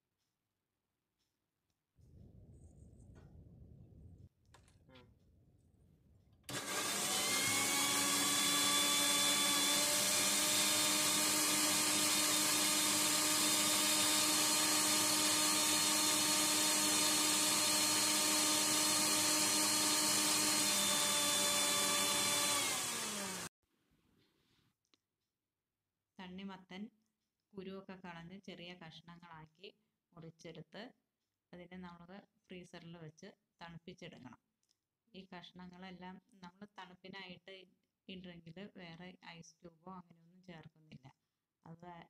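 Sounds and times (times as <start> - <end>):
mixer-grinder motor whining: 6.5 - 23.5.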